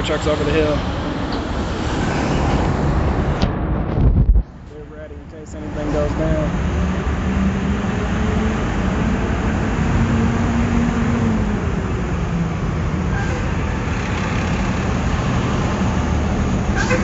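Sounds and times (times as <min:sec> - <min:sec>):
road noise: 0:00.0 - 0:17.0
trucks idling: 0:10.9 - 0:17.0.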